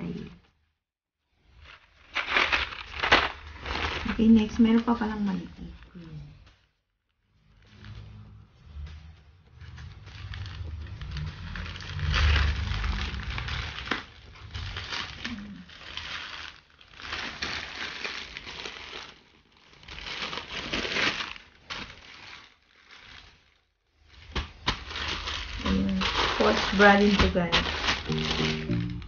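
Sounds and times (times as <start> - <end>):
plastic packaging crinkling: 1.4 - 6.6, 9.5 - 29.0
mailer being torn open: 2.1 - 4.1.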